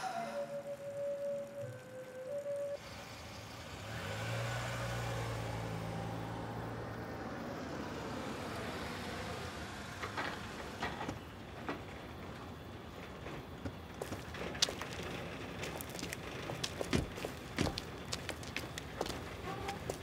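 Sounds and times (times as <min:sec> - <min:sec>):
tyre noise on pavement: 0:09.8 - 0:20.0.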